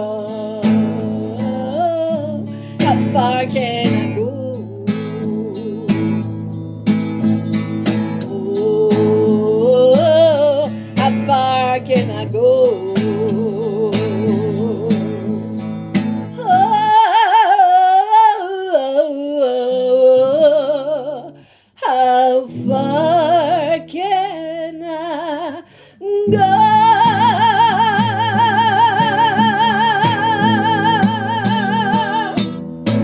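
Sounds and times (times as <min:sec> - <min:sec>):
woman singing with vibrato: 0:00.0 - 0:06.6, 0:07.4 - 0:33.0
strummed acoustic guitar: 0:00.0 - 0:18.4, 0:26.2 - 0:33.0.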